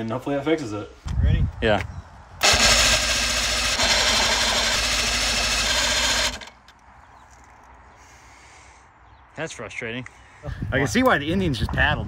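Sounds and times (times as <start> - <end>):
outboard motor starter cranking: 2.4 - 6.6.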